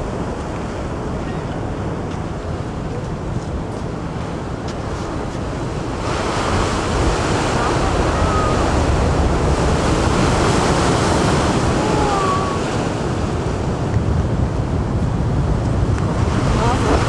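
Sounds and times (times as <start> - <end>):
storm waves breaking: 0.0 - 17.0
wind buffeting microphone: 0.0 - 17.0.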